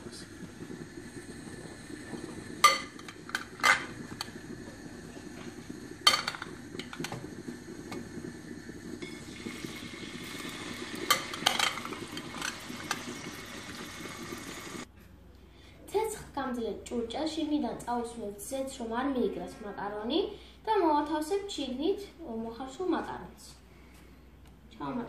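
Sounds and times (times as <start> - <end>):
meat sizzling in hot oil: 0.0 - 14.9.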